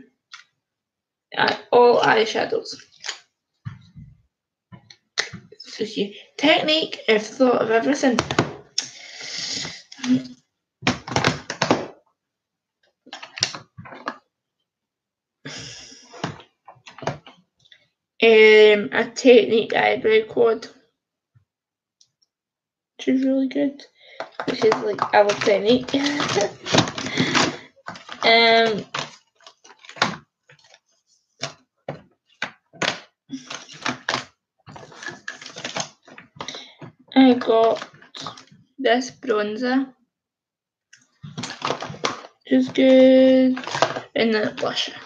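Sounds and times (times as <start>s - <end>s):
small items clicking and knocking: 24.1s - 30.8s, 31.4s - 38.5s, 41.0s - 44.8s.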